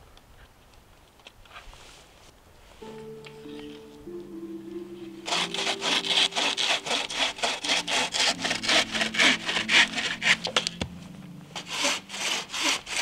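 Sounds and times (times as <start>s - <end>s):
bucksaw cutting through log: 5.2s - 10.9s, 11.6s - 13.0s.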